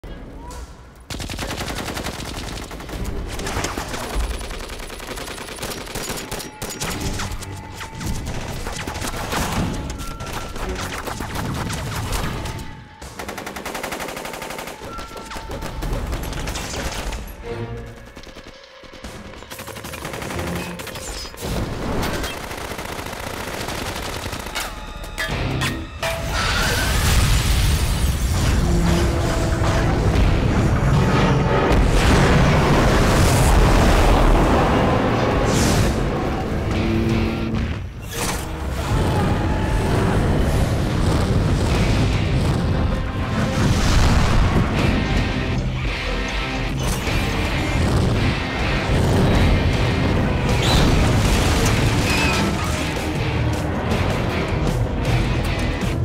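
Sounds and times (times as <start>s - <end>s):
film score music: 0.0s - 56.0s.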